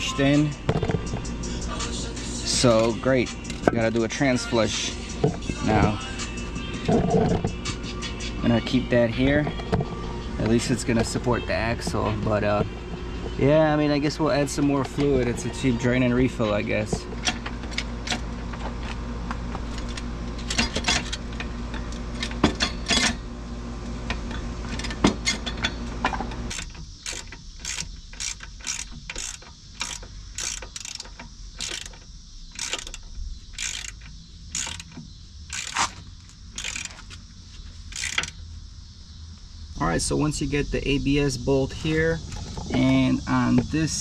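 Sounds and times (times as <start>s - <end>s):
low hum: 0.0s - 44.0s
hand ratchet clicking: 26.5s - 37.2s, 37.9s - 38.4s.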